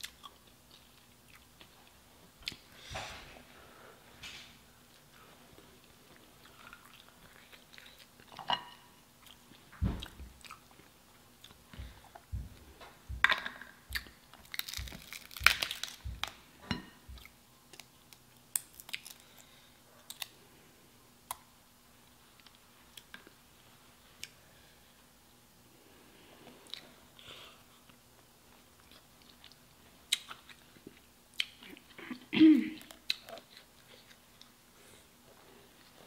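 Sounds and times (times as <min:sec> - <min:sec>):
chewing: 0:05.8 - 0:12.3
crab legs cracking apart: 0:14.4 - 0:16.4, 0:17.8 - 0:19.3.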